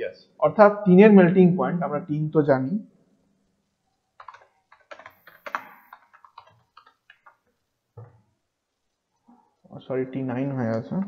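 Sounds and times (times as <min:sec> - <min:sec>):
computer keyboard typing: 0:04.2 - 0:07.6.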